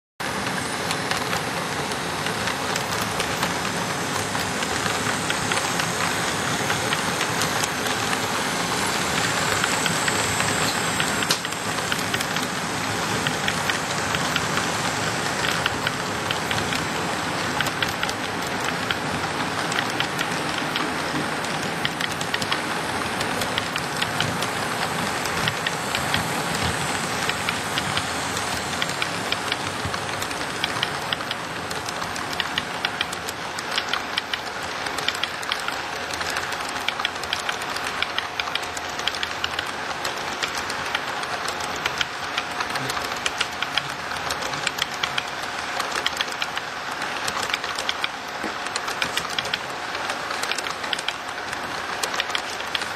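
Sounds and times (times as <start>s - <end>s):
train wheels rolling on track: 0.2s - 52.9s
wheels clicking over rail joints: 9.2s - 14.6s, 15.3s - 52.9s.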